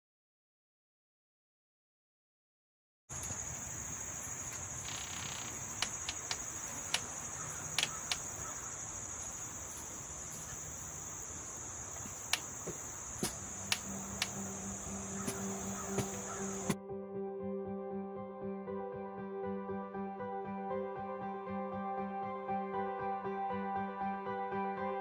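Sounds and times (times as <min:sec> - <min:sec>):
insects chorus: 0:03.1 - 0:16.8
sharp clicks: 0:04.5 - 0:08.4, 0:12.0 - 0:12.6, 0:13.2 - 0:14.4.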